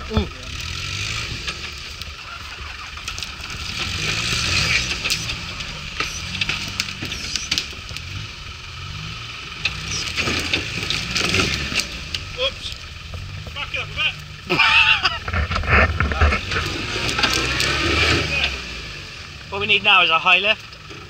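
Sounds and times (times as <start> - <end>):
twigs cracking against vehicle: 0.0 - 8.3, 9.5 - 14.4, 15.1 - 18.6
vehicle engine at low revs: 0.0 - 21.0.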